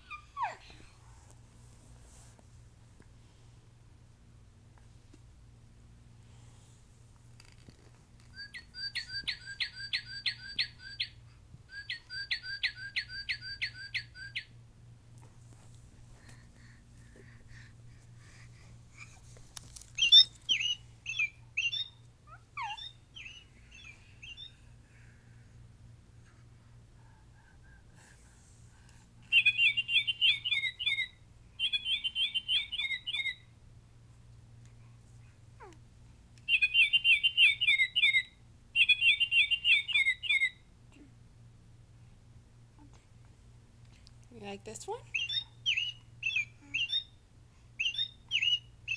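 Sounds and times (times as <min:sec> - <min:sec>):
toy bird playing birdsong: 0:08.3 - 0:14.5, 0:20.0 - 0:24.5, 0:29.3 - 0:33.4, 0:36.5 - 0:40.6, 0:45.1 - 0:47.1, 0:47.8 - 0:48.9
toy rustling: 0:19.0 - 0:20.8.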